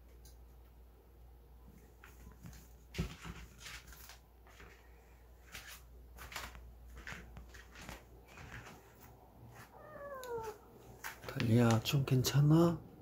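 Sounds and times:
handheld camera rustling: 2.0s - 11.8s.

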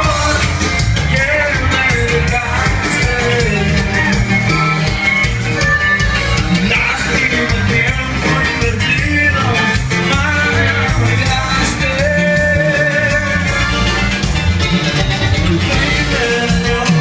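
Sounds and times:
recorded song with bass line: 0.0s - 17.0s.

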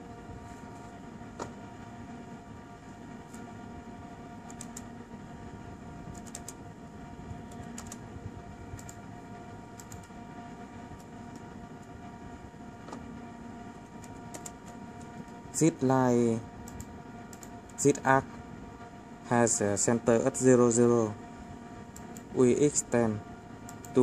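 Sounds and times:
steady hum with held tones: 0.0s - 24.0s
laptop keyboard typing: 4.4s - 4.9s, 6.1s - 6.6s, 7.5s - 8.0s, 8.7s - 9.0s, 9.7s - 10.2s, 13.8s - 15.4s, 16.6s - 17.8s.

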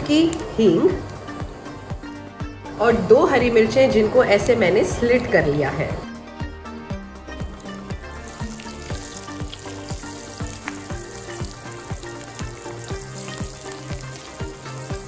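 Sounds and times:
background music with steady beat: 0.0s - 15.0s
seeds sizzling in hot oil: 7.2s - 15.0s
spatula stirring in pan: 7.6s - 15.0s.

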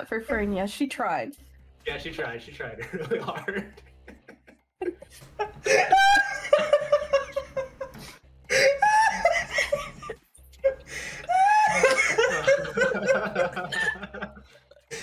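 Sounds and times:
people laughing: 2.7s - 7.9s, 8.5s - 15.0s.

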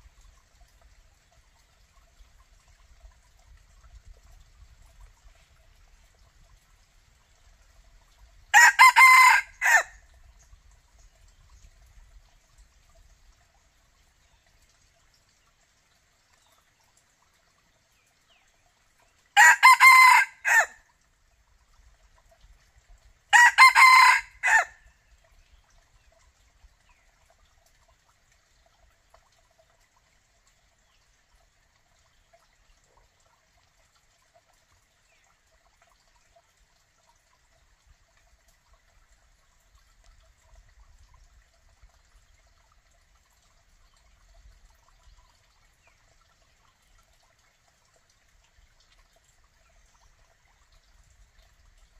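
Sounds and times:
rooster crowing: 8.6s - 9.9s, 19.4s - 20.7s, 23.3s - 24.7s.

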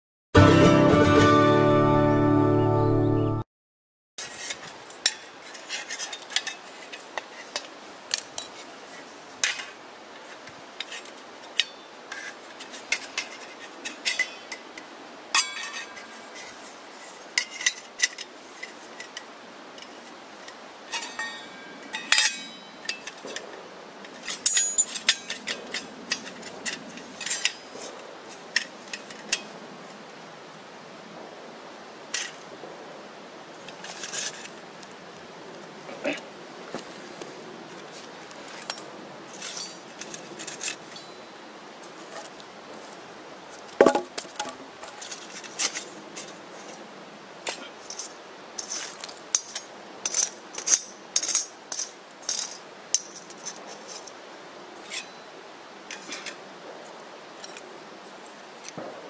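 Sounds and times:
metal parts clinking and scraping: 15.4s - 29.6s, 33.6s - 34.6s, 38.4s - 41.1s, 47.8s - 54.2s.

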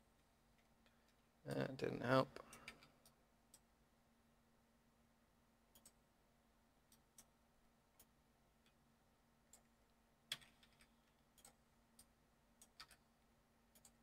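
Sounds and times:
faint steady hum: 0.0s - 14.0s
mouse and keyboard clicks: 10.3s - 13.1s.

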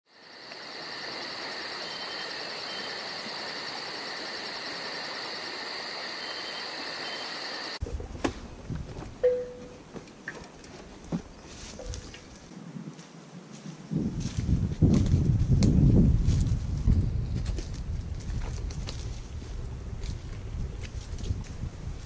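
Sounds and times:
insects trilling: 0.1s - 7.8s
footsteps on forest floor: 10.7s - 15.3s.

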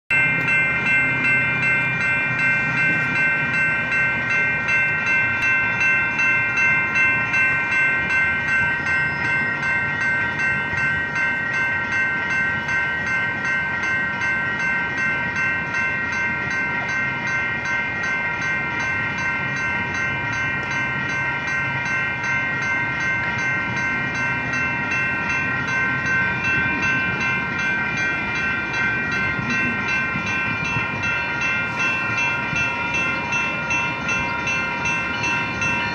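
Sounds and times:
crossing warning bell ringing: 0.1s - 35.9s.

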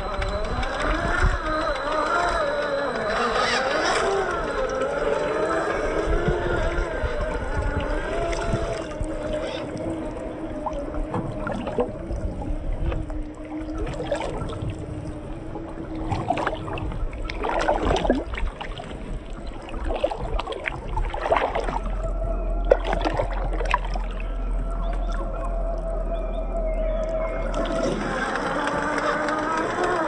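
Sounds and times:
electric motor whine: 0.0s - 11.3s, 24.0s - 30.0s
water sloshing and splashing: 0.0s - 30.0s.

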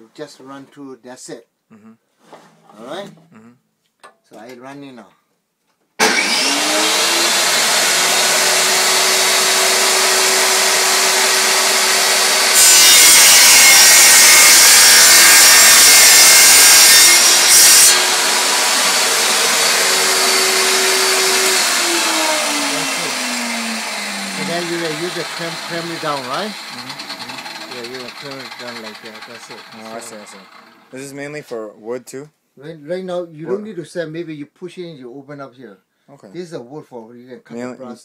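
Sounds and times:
saw blade cutting plastic pipe: 6.0s - 30.8s
table saw running: 6.0s - 31.0s.

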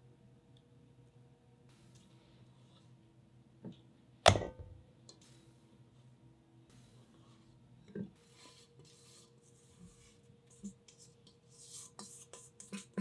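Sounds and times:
spatula scraping dough in bowl: 8.2s - 13.0s.

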